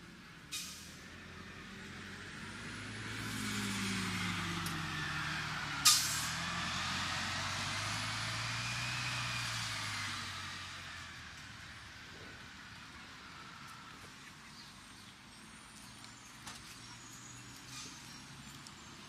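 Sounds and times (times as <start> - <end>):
street traffic: 0.0 - 19.0
air brakes hissing: 0.5 - 1.0, 5.8 - 6.4.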